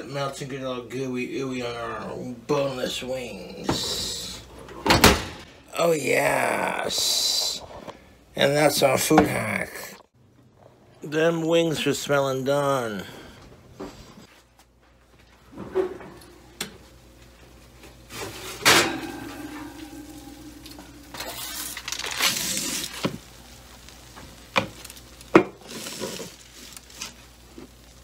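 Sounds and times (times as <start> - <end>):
metal baking sheet clanking: 18.2 - 22.0.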